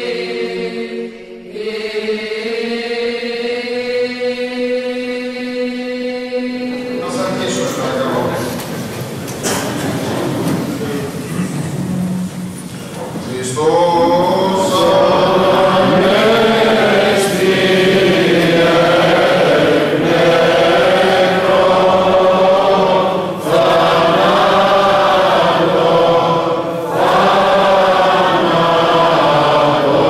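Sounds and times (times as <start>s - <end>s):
man chanting a prayer: 13.1s - 15.4s.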